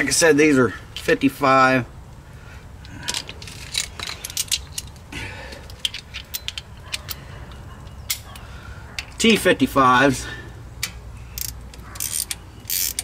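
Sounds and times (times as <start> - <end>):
metal hand tools clinking: 3.0 - 8.4
ratchet clicking: 10.8 - 13.0.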